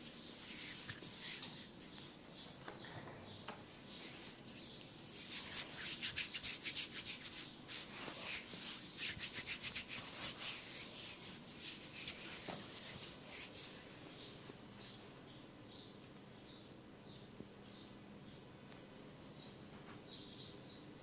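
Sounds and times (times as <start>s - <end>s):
rubbing and scratching on hair: 0.0s - 2.2s, 3.7s - 15.0s.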